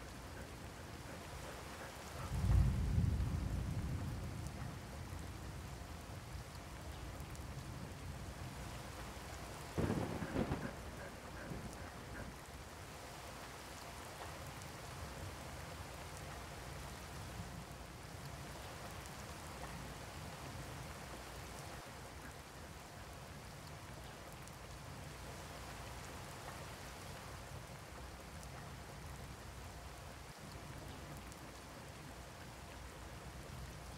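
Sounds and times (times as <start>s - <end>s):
steady rain hissing: 0.0s - 33.9s.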